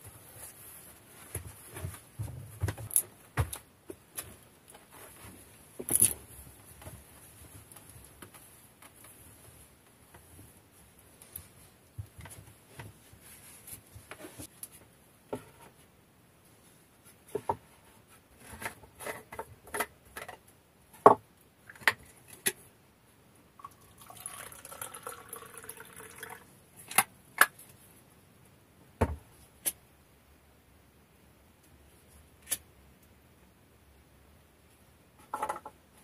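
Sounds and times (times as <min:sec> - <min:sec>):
drink poured into cup: 0:23.6 - 0:26.4.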